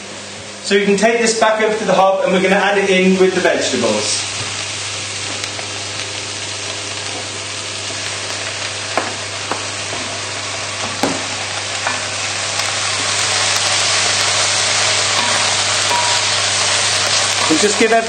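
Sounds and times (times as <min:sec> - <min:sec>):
vegetables sizzling in pot: 0:00.6 - 0:18.0.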